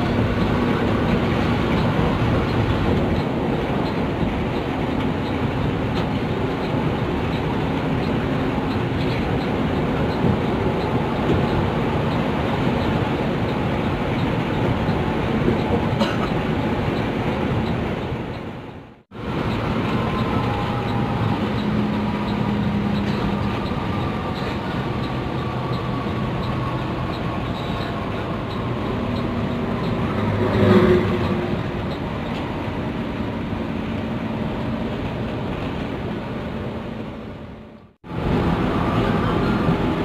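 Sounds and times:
coach engine and road noise: 0.0 - 40.0
slow-shifting whine: 19.2 - 35.0.

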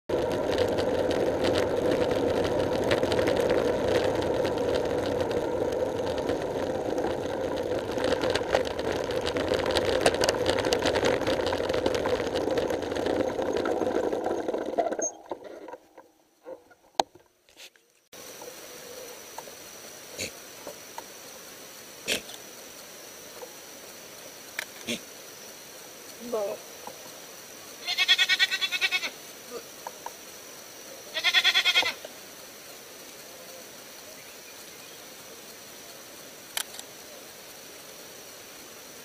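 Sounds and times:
wind noise: 0.1 - 15.7
bicycle rolling on asphalt: 0.1 - 17.3, 22.6 - 39.0
sharp clicks: 36.5 - 36.9.

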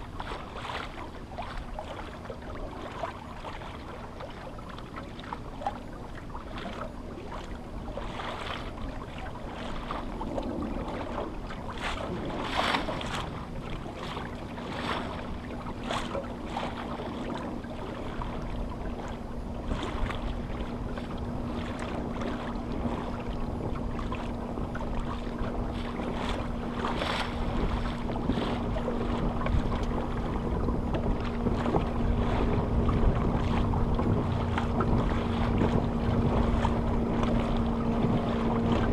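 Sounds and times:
water slapping against hull: 0.0 - 38.9
wind rumbling on microphone: 0.0 - 38.9.

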